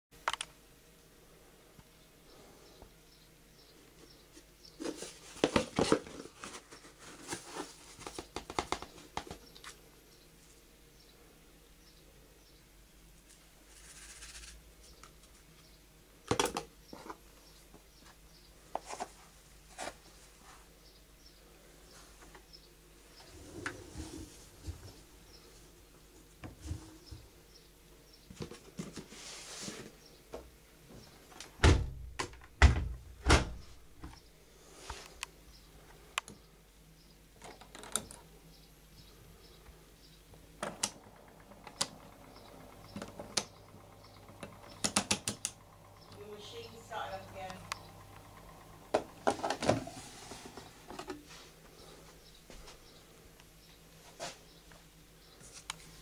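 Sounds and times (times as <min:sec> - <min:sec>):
washing machine door thudding shut: 0:31.6 - 0:33.7.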